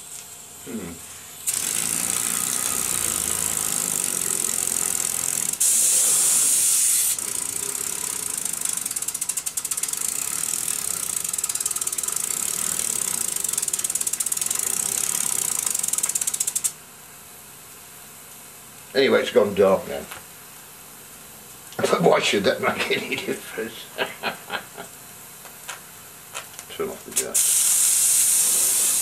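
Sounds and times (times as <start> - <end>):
steam hissing: 1.1 - 9.2, 27.2 - 29.0.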